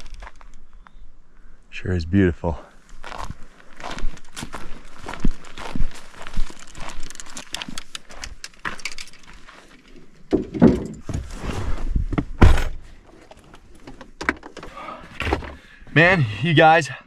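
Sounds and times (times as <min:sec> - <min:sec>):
fishing gear clicking and knocking: 0:06.5 - 0:11.0
person climbing into truck cab: 0:10.2 - 0:15.6.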